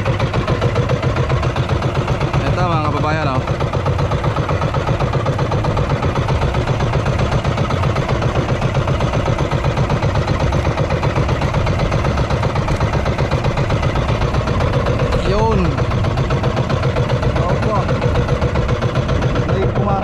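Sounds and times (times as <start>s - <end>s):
boat motor chugging: 0.0s - 20.0s.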